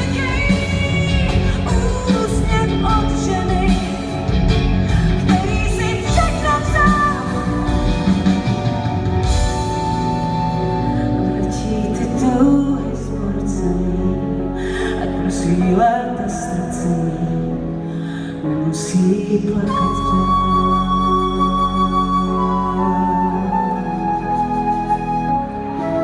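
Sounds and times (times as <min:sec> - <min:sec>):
rock band playing: 0:00.0 - 0:12.7
person singing: 0:00.0 - 0:24.5.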